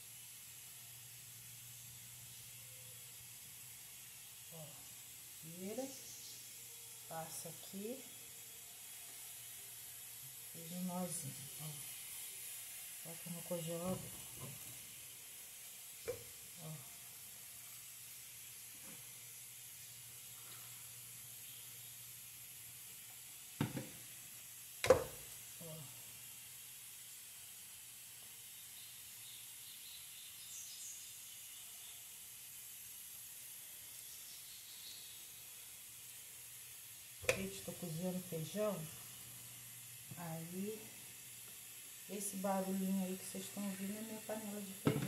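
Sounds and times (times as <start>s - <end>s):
pressure cooker steam hissing: 0.0s - 45.0s
plastic funnel knocking at sink: 23.6s - 23.9s.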